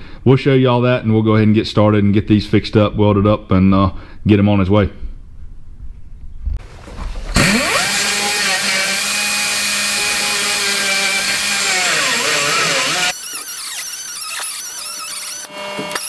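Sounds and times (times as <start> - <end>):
die grinder grinding steel: 7.3 - 16.0.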